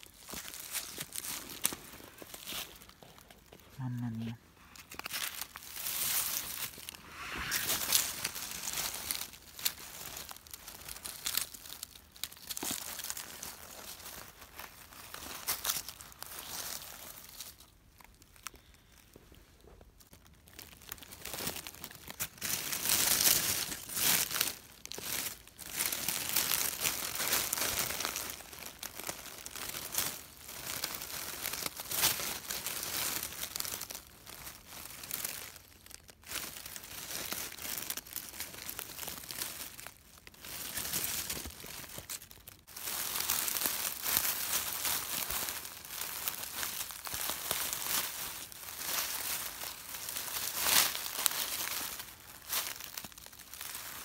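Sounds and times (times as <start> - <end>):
dry leaves crackling: 0.0 - 19.1, 19.8 - 54.0.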